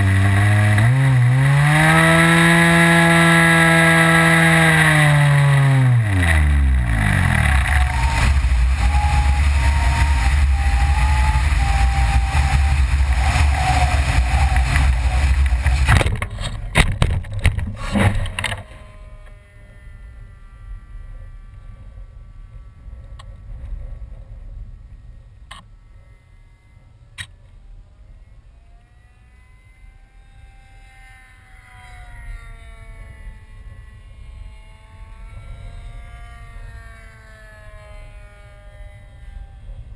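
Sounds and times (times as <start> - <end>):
model plane engine dying: 0.0 - 24.1, 24.8 - 39.9
steady loud rumble: 0.0 - 28.6
faint distant engine: 0.0 - 39.9.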